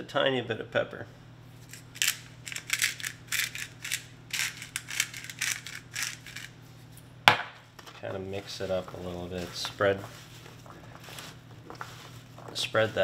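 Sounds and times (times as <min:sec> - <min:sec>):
pepper grinder crushing peppercorns: 0:01.7 - 0:06.5.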